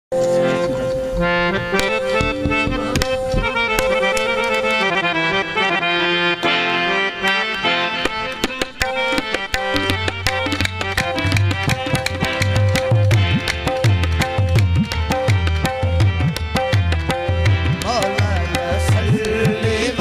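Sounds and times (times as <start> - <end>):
harmonium drone and melody: 0.1 - 20.0
tabla strokes: 0.3 - 5.0, 7.5 - 20.0.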